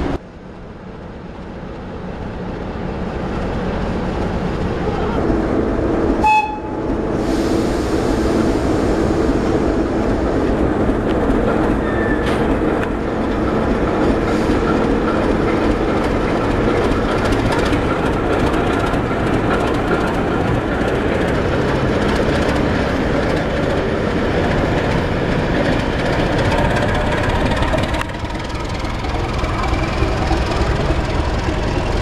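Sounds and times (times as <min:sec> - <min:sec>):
diesel locomotive engine running: 0:00.0 - 0:32.0
wheels clacking over rail joints: 0:10.4 - 0:32.0.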